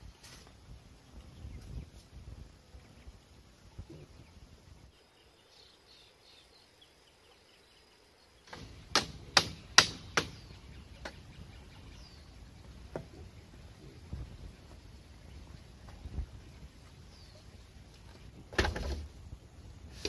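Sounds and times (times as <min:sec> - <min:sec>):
machete striking bamboo: 0:08.5 - 0:10.4.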